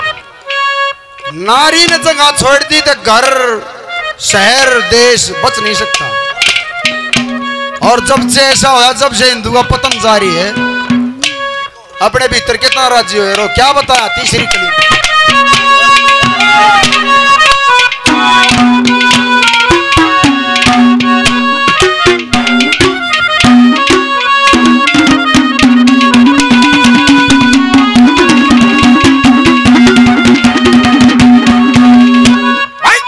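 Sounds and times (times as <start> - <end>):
instrumental melody line: 0.0 - 33.0
fast hand drum strokes: 12.3 - 32.6.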